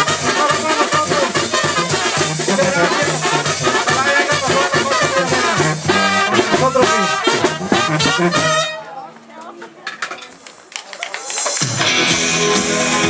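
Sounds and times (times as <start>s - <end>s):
steady drum beat: 0.0s - 8.8s
brass band playing: 0.0s - 9.1s.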